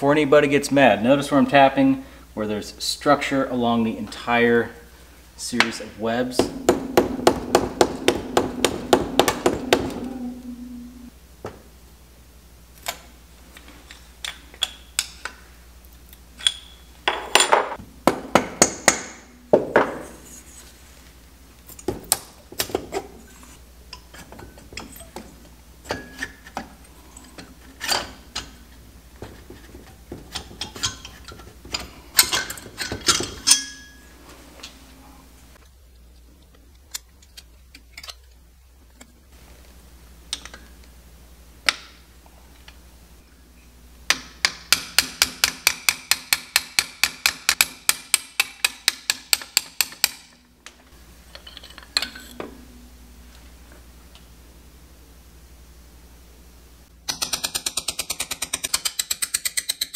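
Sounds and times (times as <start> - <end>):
hammer tapping metal casting: 6.4 - 10.0
metal parts and tools clinking: 29.6 - 34.1, 36.1 - 39.0, 51.3 - 52.5.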